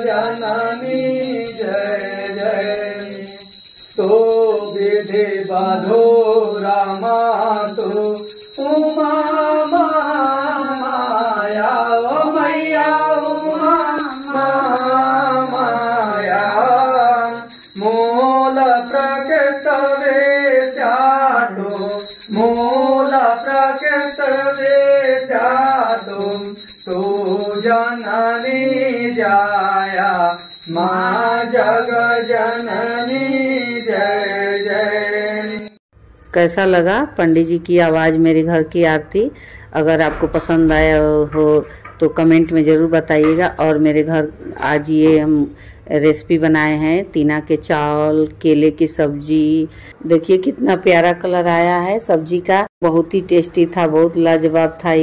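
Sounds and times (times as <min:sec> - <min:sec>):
steady high ringing: 0:00.0 - 0:36.4.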